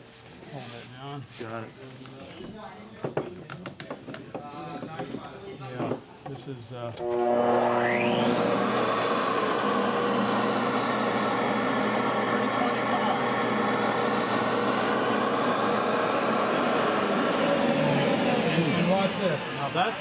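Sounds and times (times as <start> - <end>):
motor whine: 7.0 - 20.0.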